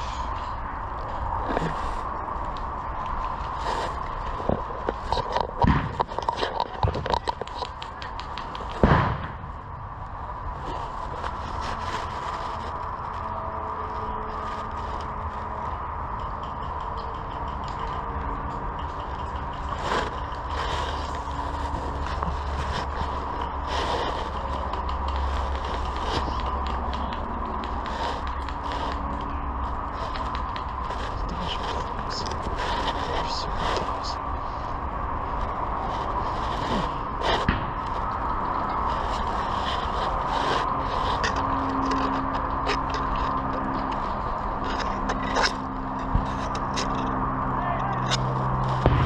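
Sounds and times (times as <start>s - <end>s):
low rumble: 8.4s - 49.0s.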